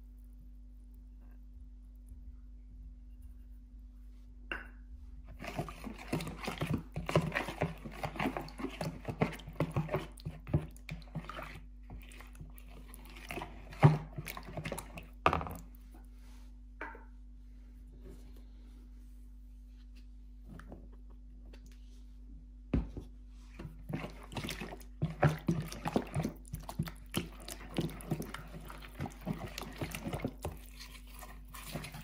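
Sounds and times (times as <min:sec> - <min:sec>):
rustling and scraping of food: 0:05.1 - 0:16.7, 0:17.6 - 0:22.3, 0:22.9 - 0:32.0.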